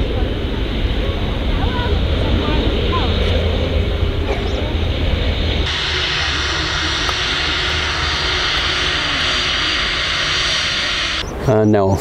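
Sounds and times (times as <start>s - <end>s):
jet engine hiss: 0.0s - 11.5s
landing airliner rumble: 0.0s - 12.0s.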